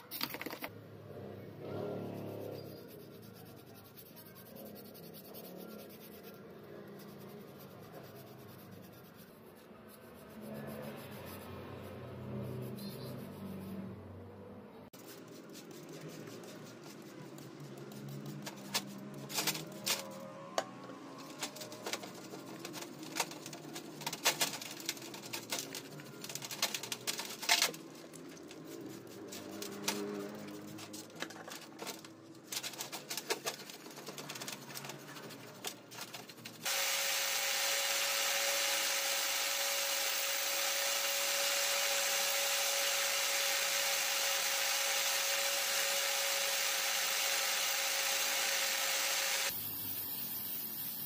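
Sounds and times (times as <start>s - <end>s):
metal parts brushed in tray: 2.0s - 13.9s, 15.0s - 20.4s, 21.0s - 36.7s
metal clicks and scrapes: 15.0s - 36.7s.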